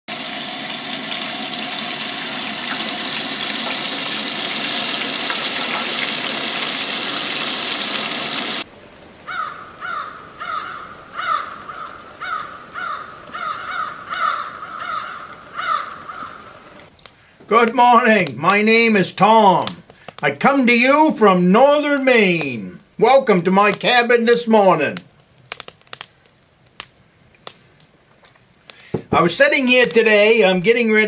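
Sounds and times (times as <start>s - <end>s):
camp stove hissing: 0.1s - 8.7s
bird calling: 9.3s - 16.9s.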